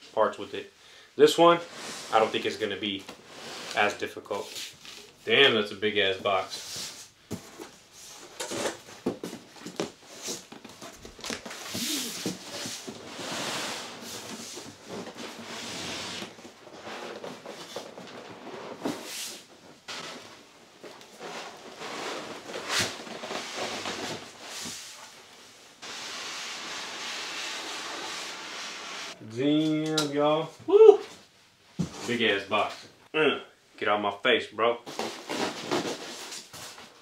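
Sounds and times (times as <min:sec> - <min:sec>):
cardboard rustling and scraping: 0:06.3 - 0:29.2, 0:34.9 - 0:37.0.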